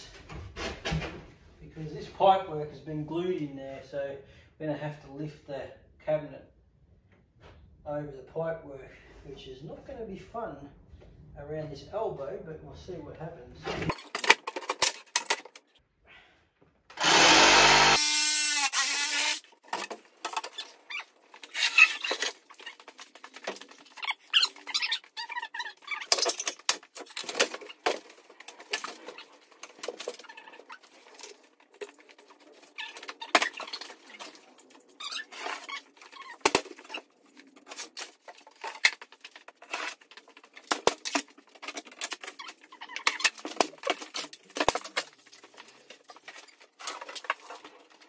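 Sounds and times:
cordless power drill running: 0:16.9 - 0:19.4.

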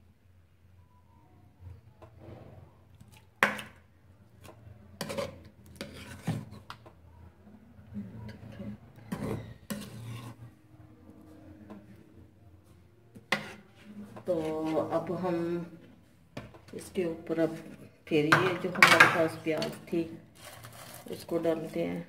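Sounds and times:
spatula scraping nonstick pan: 0:05.0 - 0:06.8, 0:08.4 - 0:10.5, 0:13.2 - 0:15.2, 0:20.4 - 0:21.8.

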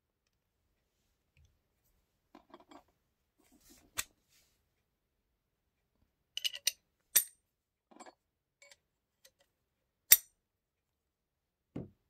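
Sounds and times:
metal parts clinking: 0:06.4 - 0:07.3.

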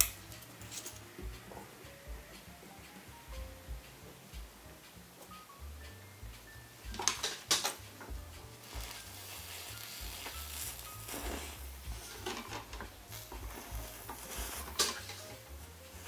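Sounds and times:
gas torch hissing: 0:06.5 - 0:16.0.

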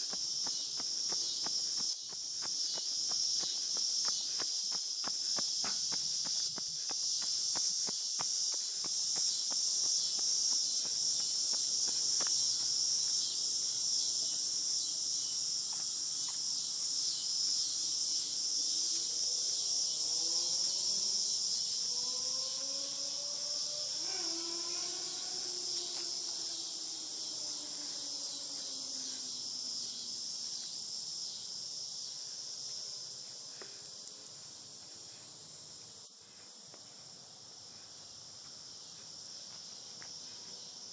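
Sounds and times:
insects chirping: 0:00.0 - 0:40.9
faint gliding drone: 0:21.9 - 0:29.7.

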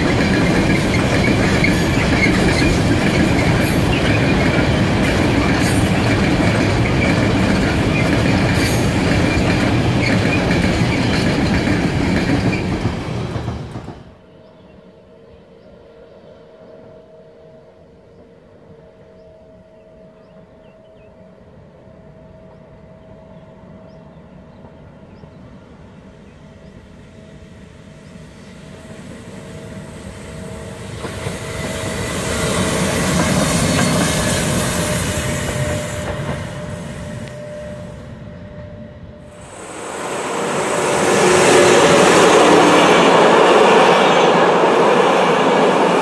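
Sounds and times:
train wheels rumbling on rails: 0:00.0 - 0:14.3, 0:24.8 - 0:46.0.

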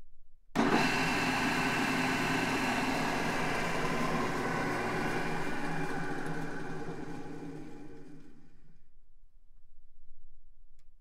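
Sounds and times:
drill press motor humming: 0:00.6 - 0:08.8.

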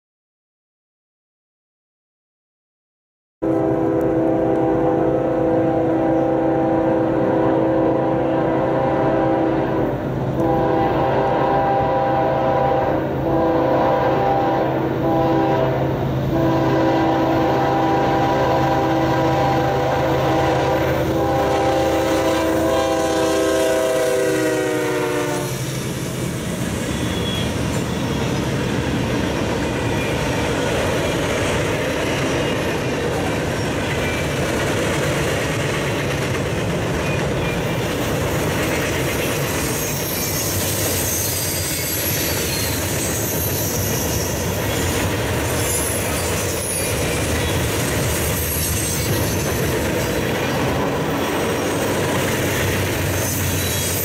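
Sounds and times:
locomotive air horn blasts: 0:03.4 - 0:25.8, 0:26.9 - 0:27.6.

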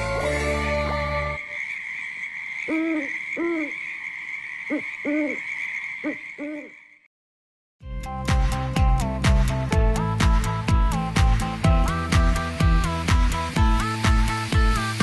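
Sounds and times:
music: 0:00.0 - 0:01.4, 0:07.8 - 0:15.0
owl hooting: 0:01.4 - 0:07.0
steady high hiss: 0:11.8 - 0:15.0.

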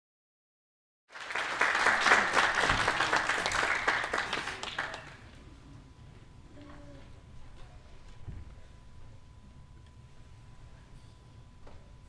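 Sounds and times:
audience applauding: 0:01.1 - 0:05.3.

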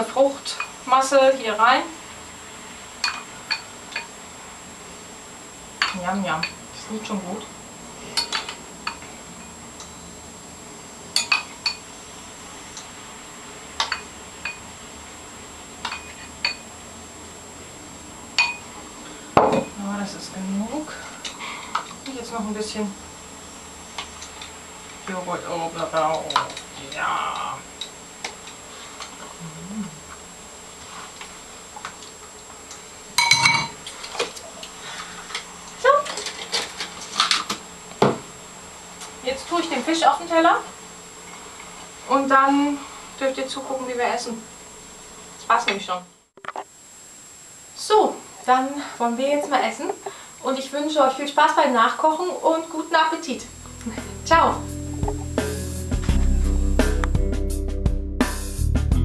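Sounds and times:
spoon clinking against glass bowl: 0:11.2 - 0:11.8, 0:15.9 - 0:16.6, 0:18.4 - 0:18.6, 0:33.2 - 0:33.8
dishes and cutlery clinking: 0:33.2 - 0:33.8.

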